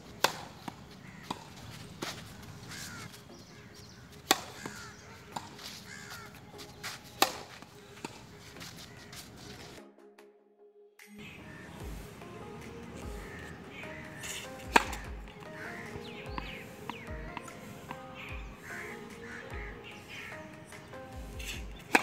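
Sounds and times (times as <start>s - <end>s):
birds calling: 0.0s - 9.8s, 11.2s - 22.0s
tennis ball bouncing: 0.1s - 3.1s, 3.8s - 8.9s, 12.6s - 22.0s
tennis ball struck with racket: 0.2s - 2.3s, 4.2s - 5.8s, 6.8s - 8.3s, 13.2s - 18.7s, 21.4s - 22.0s.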